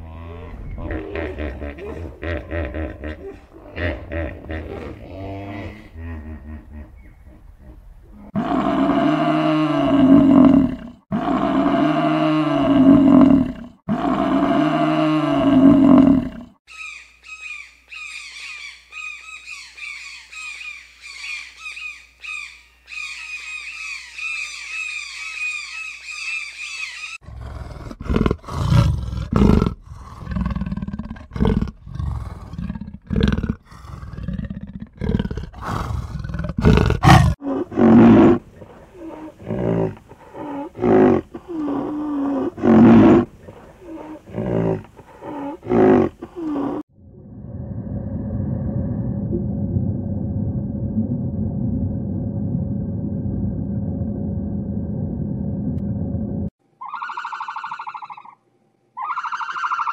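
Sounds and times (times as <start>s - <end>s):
big cat growling and hissing: 27.2s - 46.8s.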